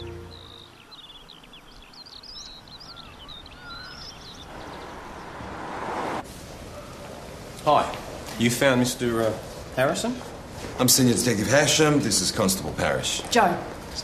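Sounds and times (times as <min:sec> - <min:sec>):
background music: 0:00.0 - 0:00.9
birds chirping and twittering: 0:00.0 - 0:07.5
rushing noise: 0:04.5 - 0:08.2.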